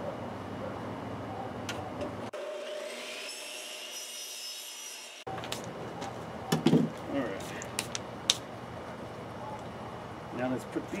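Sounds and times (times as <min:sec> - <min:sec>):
miter saw cutting pipe: 0:02.4 - 0:05.3.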